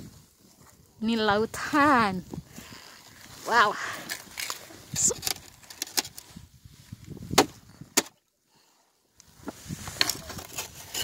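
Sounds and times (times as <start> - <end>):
thin ice cracking and snapping: 2.6 - 6.3.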